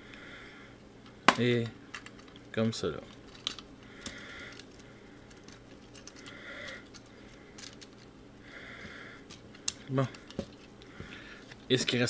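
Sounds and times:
plastic parts clicking: 3.3s - 8.1s.

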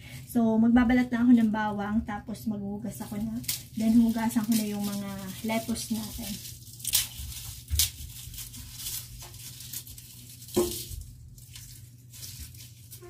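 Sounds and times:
lettuce and plastic bag rustling: 2.7s - 13.0s.

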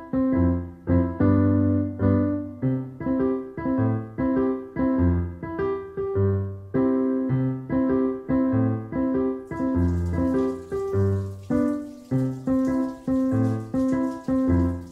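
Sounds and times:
piano music: 0.0s - 14.9s
tap water running: 9.5s - 14.9s.

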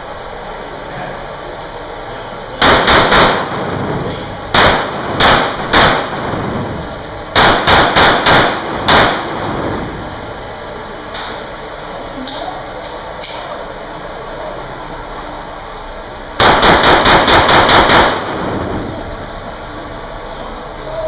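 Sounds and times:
pistol shots indoors: 2.6s - 10.0s, 16.4s - 19.0s.

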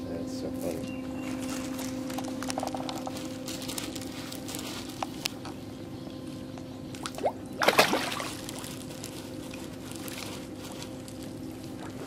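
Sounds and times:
fish splashing gulp: 7.0s - 8.6s.

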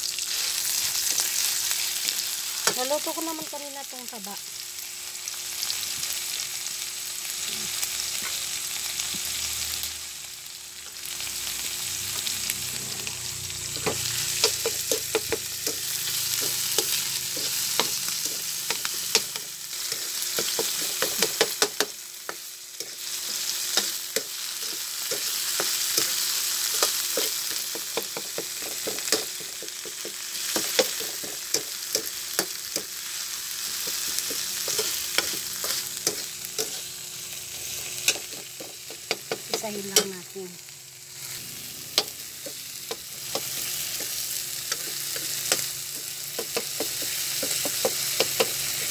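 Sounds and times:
food sizzling in hot oil: 0.0s - 48.9s
metal spatula scraping pan: 33.6s - 36.9s.

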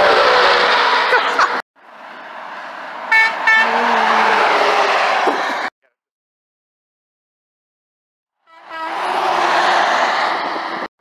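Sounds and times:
truck passing close: 8.6s - 10.9s.

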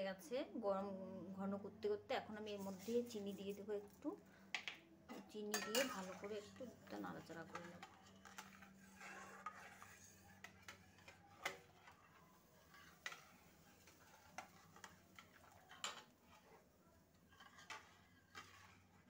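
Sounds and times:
spoon scraping metal pan: 5.1s - 16.6s, 17.3s - 19.0s
spoon clinking against pan: 5.5s - 6.2s.

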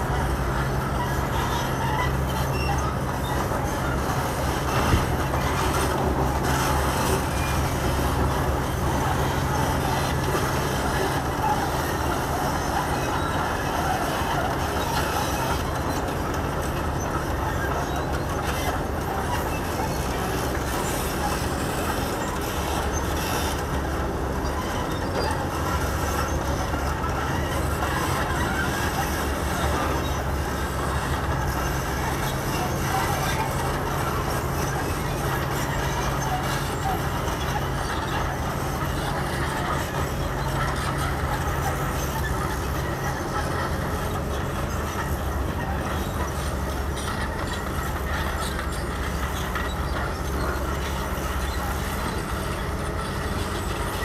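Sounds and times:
excavator diesel engines droning: 0.0s - 54.0s.

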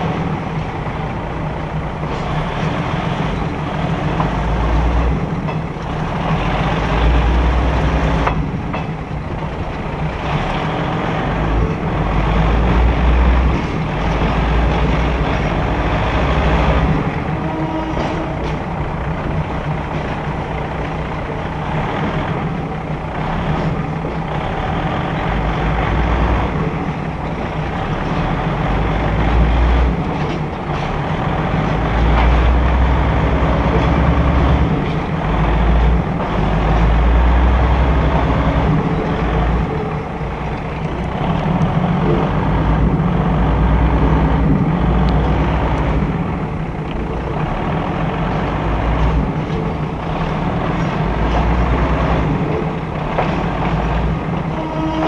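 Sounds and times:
passenger train running on track: 0.0s - 55.0s
wind rumbling on microphone: 38.1s - 54.8s.

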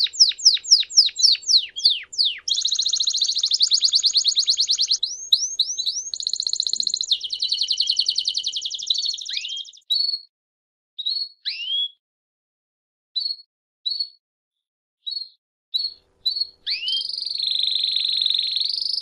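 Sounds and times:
canary singing trills: 0.0s - 10.2s, 15.1s - 19.0s.

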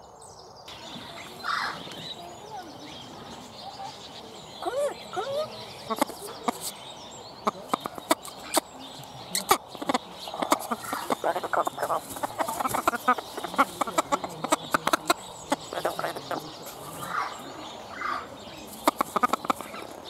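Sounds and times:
parrot chattering: 9.4s - 17.2s.

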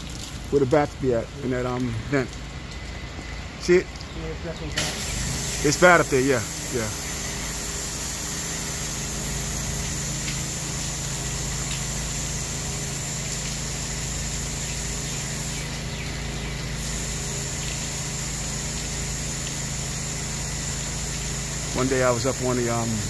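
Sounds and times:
pressure washer motor droning: 0.0s - 23.0s
high-pressure water jet hissing: 4.6s - 23.0s.

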